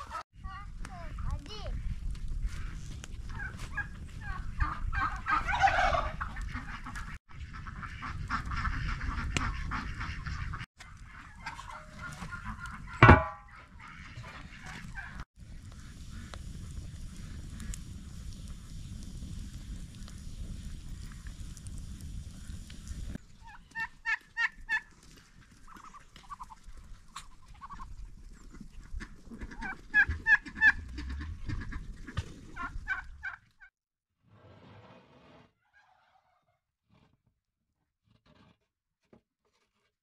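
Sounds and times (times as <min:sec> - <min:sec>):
wind rumble on microphone: 0:00.4 - 0:11.1, 0:14.1 - 0:23.4, 0:27.7 - 0:33.2
poultry calling: 0:02.5 - 0:16.4, 0:28.9 - 0:33.4.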